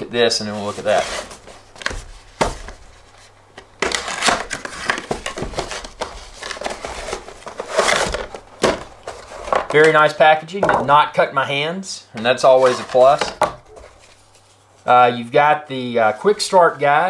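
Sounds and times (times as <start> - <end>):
cardboard and plastic rustling: 0.3 - 10.8, 12.5 - 14.9.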